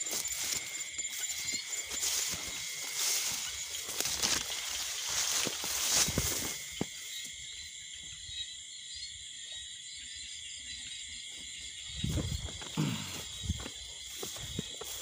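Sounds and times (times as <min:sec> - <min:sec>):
footsteps swishing through grass: 0:00.0 - 0:07.2, 0:13.3 - 0:15.0
crickets chirping: 0:00.0 - 0:15.0.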